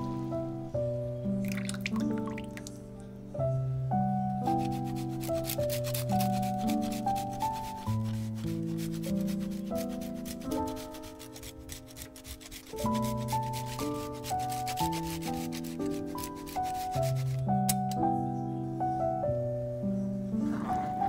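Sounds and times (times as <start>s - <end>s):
background music slow melody: 0.0s - 21.0s
wooden spoon stirring: 4.6s - 17.4s.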